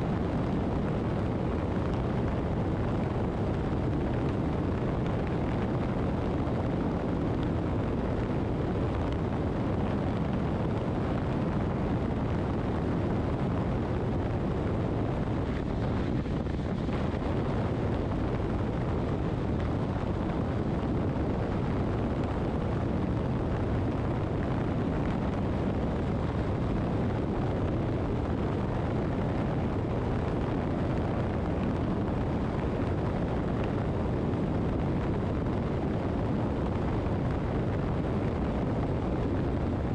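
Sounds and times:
wind and road noise: 0.0s - 39.9s.

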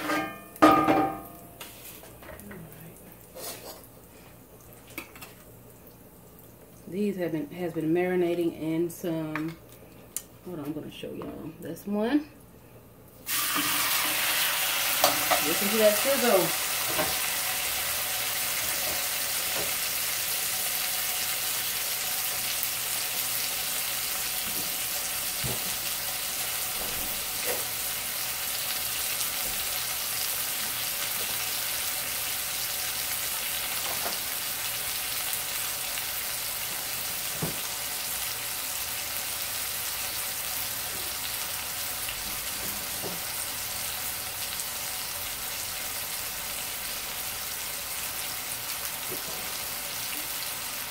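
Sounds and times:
frying pop: 13.2s - 50.9s
pork chops sizzling in skillet: 13.2s - 50.9s.

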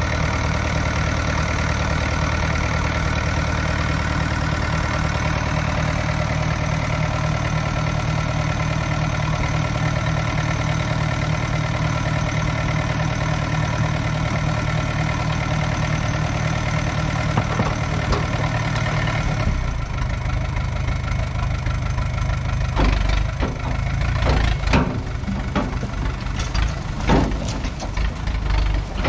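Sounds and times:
tractor diesel engine running: 0.0s - 29.0s
sharp knocks and clanks: 17.3s - 19.2s, 22.7s - 29.0s.

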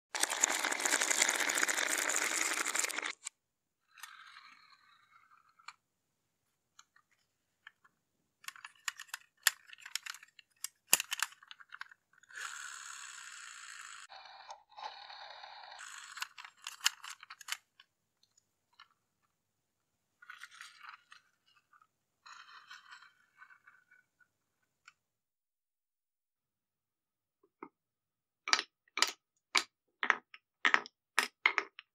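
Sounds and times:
marbles rolling on wooden rails: 0.2s - 3.3s, 15.8s - 17.6s, 20.2s - 24.1s, 28.5s - 31.9s
wooden blocks clicking: 0.2s - 3.3s, 28.5s - 31.9s.

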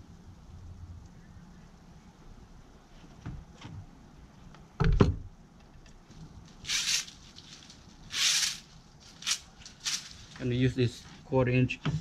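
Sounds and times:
rustling and scraping: 2.9s - 4.6s, 5.6s - 12.0s.

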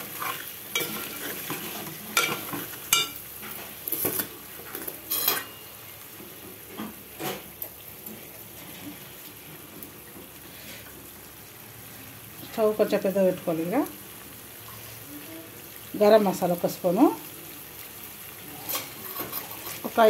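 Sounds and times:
faint sizzle: 0.0s - 20.0s
spoon scraping a metal pot: 5.1s - 5.6s, 18.7s - 19.9s.

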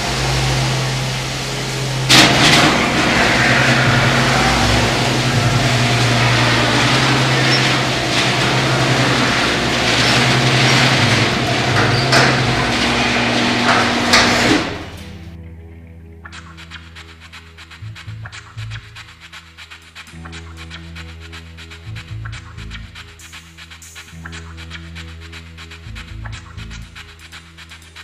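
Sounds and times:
garage door rattling along track: 0.0s - 15.3s
garage door opener hum: 0.0s - 15.4s
loud clank: 2.0s - 15.2s
knocks and clunk: 2.1s - 15.2s.

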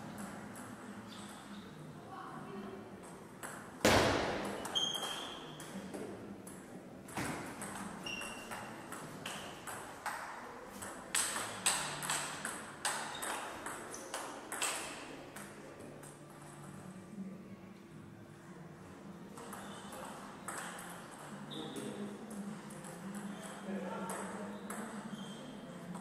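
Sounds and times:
table tennis ball hits: 3.4s - 15.6s.

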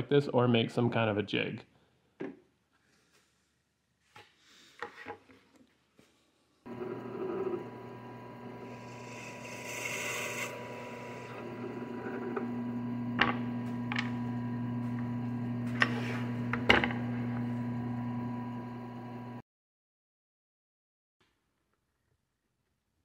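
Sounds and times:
drill bit cutting wood: 6.7s - 18.5s
drill press motor humming: 6.7s - 19.4s.

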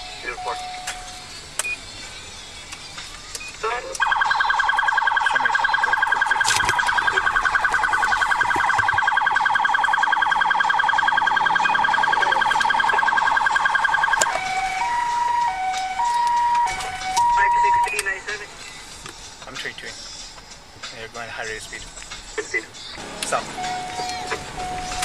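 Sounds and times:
police car siren: 0.0s - 1.4s, 4.0s - 18.1s, 23.0s - 25.0s.

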